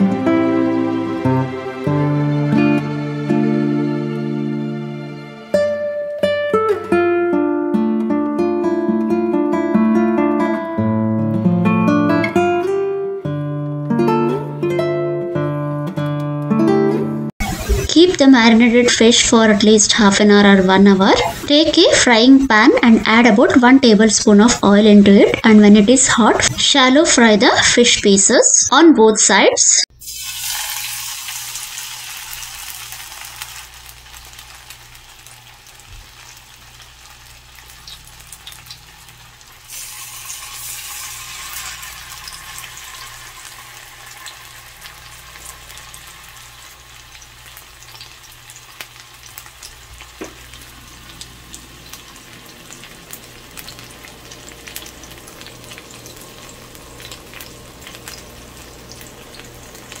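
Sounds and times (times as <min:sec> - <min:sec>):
fish sizzling in oil: 0:29.9 - 1:00.0.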